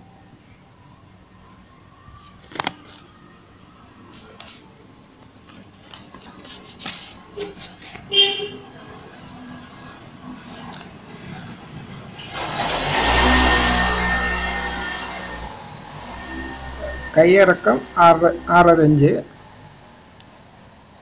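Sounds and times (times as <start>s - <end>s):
loud pitched toot: 13.0s - 19.0s.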